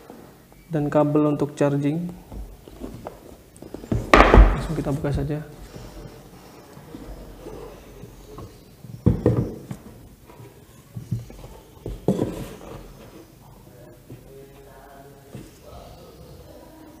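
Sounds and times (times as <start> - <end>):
knocks on wooden table: 4.0 - 4.7.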